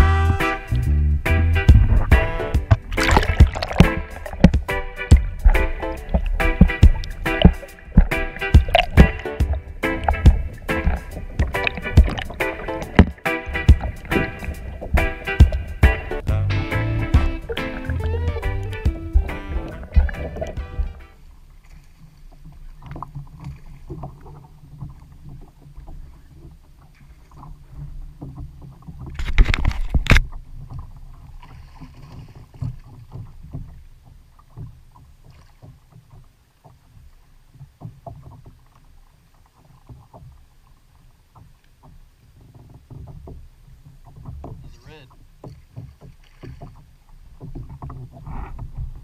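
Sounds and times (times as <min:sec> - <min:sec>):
water lapping against kayak hull: 0:00.0 - 0:49.0
wind rumbling on microphone: 0:00.7 - 0:21.0.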